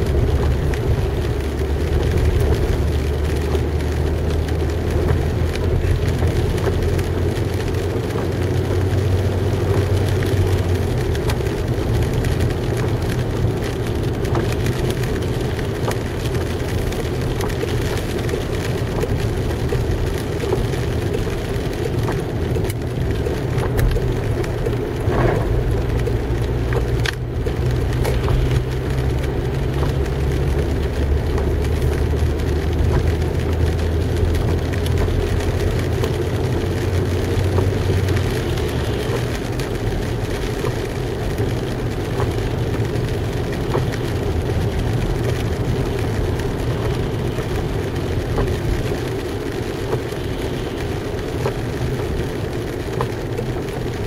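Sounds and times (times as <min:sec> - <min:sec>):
car engine drone: 0:00.0 - 0:54.0
tyres hissing on wet road: 0:00.0 - 0:54.0.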